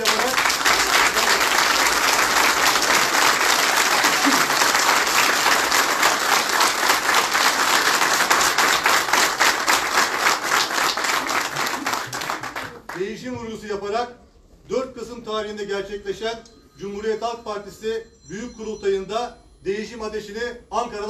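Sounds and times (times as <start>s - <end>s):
audience applauding: 0.0s - 13.1s.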